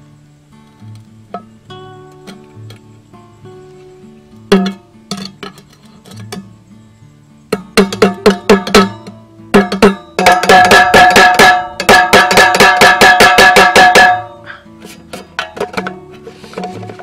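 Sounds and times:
faint guitar music: 0.0s - 17.0s
hammer striking metal tin: 4.5s - 6.5s, 7.5s - 17.0s.

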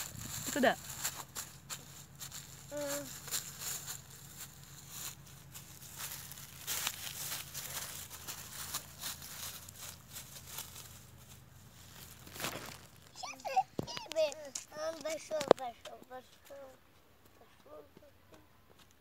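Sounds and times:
footsteps on dry leaves: 0.0s - 13.9s
child's vocal sound: 2.7s - 3.1s, 13.2s - 15.0s.

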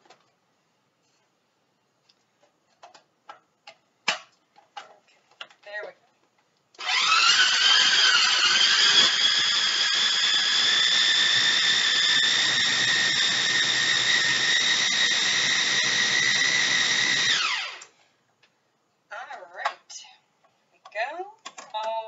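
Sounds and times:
food processor motor whine: 6.8s - 18.0s.

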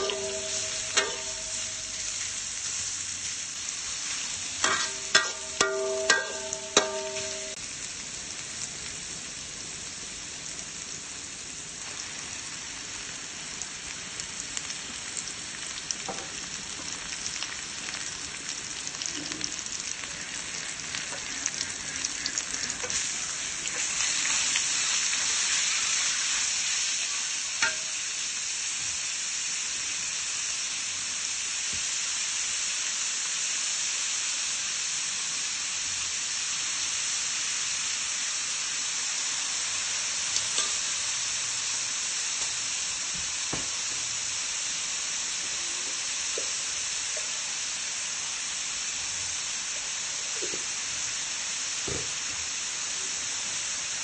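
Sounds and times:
metal spoon scraping a wok: 0.0s - 2.3s, 4.6s - 7.6s
spoon knocking on ringing wok: 0.0s - 2.3s, 4.6s - 7.6s, 27.6s - 28.0s
food sizzling in a wok: 0.0s - 54.0s.

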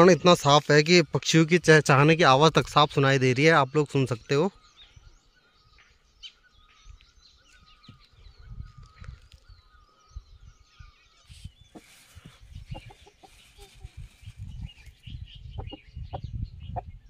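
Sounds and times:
small birds chirping: 0.0s - 17.0s
low wind rumble: 4.6s - 17.0s
rooster clucking: 12.7s - 14.0s.

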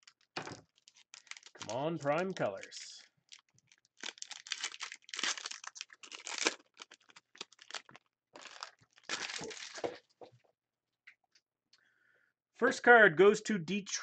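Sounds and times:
packaging crinkling and tearing: 0.0s - 2.4s, 3.2s - 10.0s.

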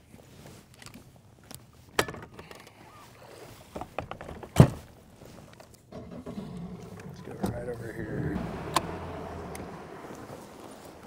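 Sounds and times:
knocks and clunks of trolling motor: 5.9s - 11.0s.

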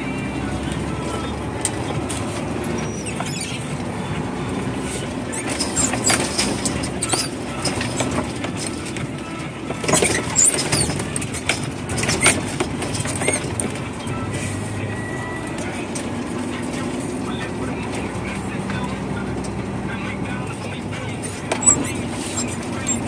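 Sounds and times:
diesel engine running: 0.0s - 23.0s
cab rattles and knocks: 5.3s - 14.2s.

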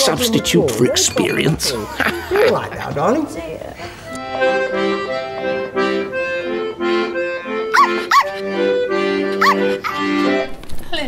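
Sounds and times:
accordion playing chords: 3.1s - 10.7s
small dog yapping: 7.8s - 8.3s, 9.4s - 10.0s.

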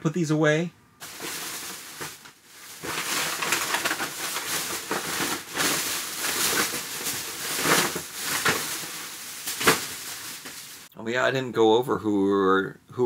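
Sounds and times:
plastic bag rustling and crinkling: 1.0s - 10.9s.

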